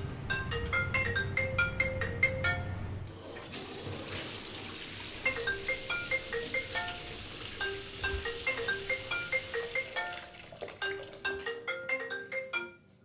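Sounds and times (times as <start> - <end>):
marimba-like notes: 5.3 - 12.8
shower spray hissing: 6.5 - 10.0.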